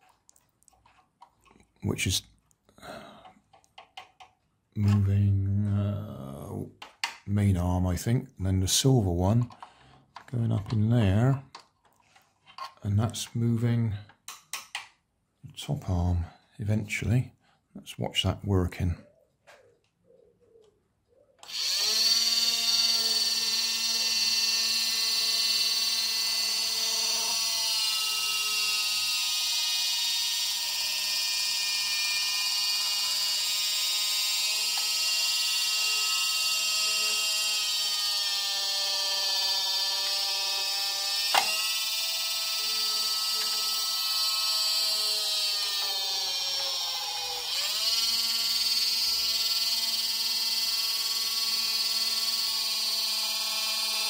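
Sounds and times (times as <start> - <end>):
toy motor whine with gear hum: 21.4 - 54.0.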